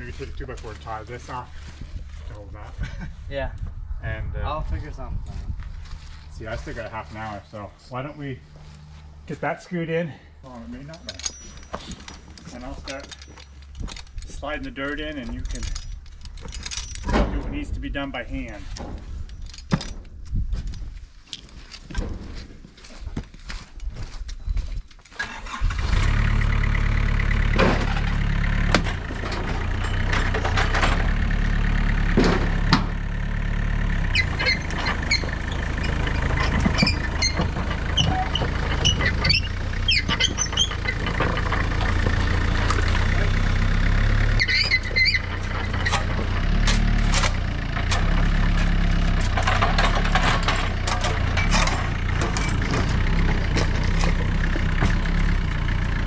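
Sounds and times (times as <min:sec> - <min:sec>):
diesel engine running: 0:00.0 - 0:16.8, 0:25.2 - 0:56.0
high squeaks and clinks: 0:10.5 - 0:17.4, 0:29.6 - 0:30.8, 0:34.0 - 0:43.2, 0:44.0 - 0:47.4.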